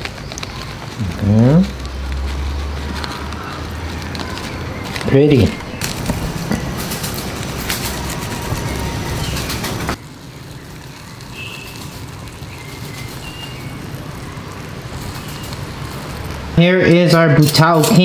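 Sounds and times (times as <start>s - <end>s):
noisy background with clicks: 0.0s - 16.6s
faint bird chirps: 7.9s - 15.7s.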